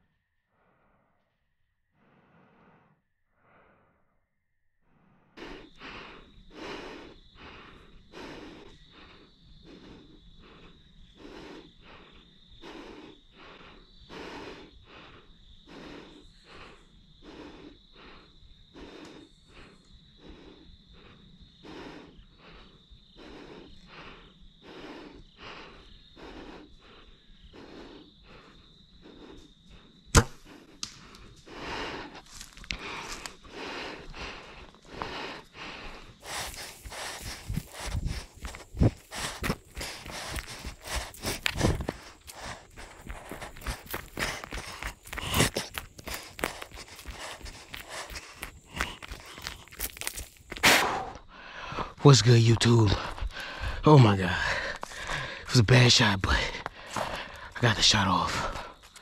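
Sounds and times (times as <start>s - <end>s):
bow string snap: 30.1s - 31.0s.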